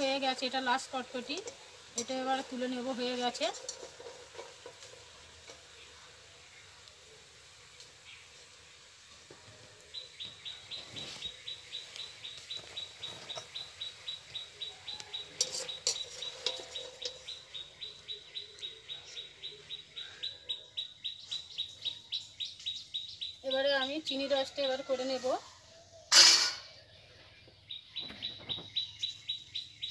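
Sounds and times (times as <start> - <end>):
bird chirping: 9.9 - 24.2, 26.7 - 29.9.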